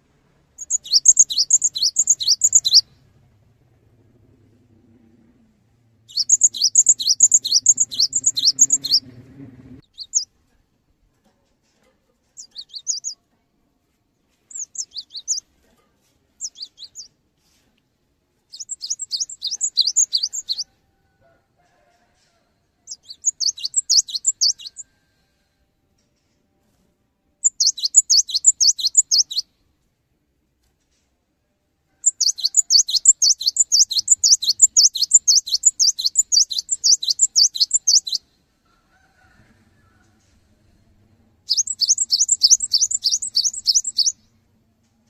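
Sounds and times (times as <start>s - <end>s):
low hum: 0.0s - 10.1s
bird singing high repeated notes: 0.6s - 2.9s, 6.1s - 9.1s, 9.8s - 10.3s, 12.4s - 13.2s, 14.5s - 15.4s, 18.5s - 20.6s, 22.9s - 24.8s, 27.4s - 29.5s, 32.2s - 38.2s, 41.5s - 44.2s.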